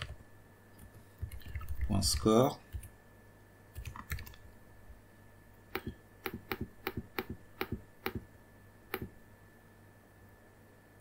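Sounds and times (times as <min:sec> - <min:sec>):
keyboard keystrokes clicking: 0:03.8 - 0:04.4.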